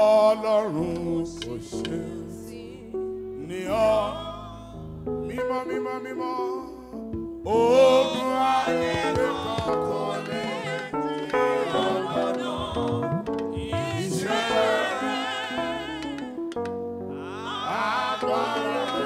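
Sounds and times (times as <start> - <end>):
man singing into microphone: 0.0 - 6.9, 7.5 - 10.4
sustained instrumental backing: 6.9 - 17.2.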